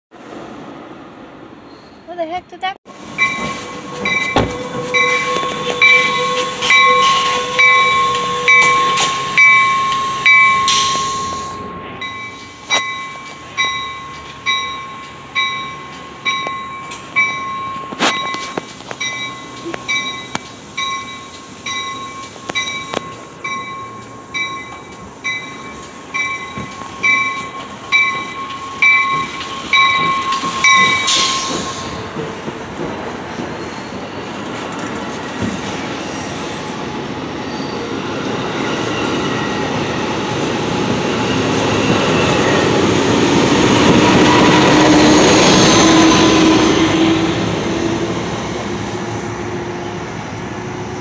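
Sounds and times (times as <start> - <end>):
passenger train rolling past: 0.1 - 51.0
sharp clicks from train cars: 3.2 - 11.4, 12.7 - 33.6, 34.3 - 35.8
bell ringing: 3.2 - 32.0.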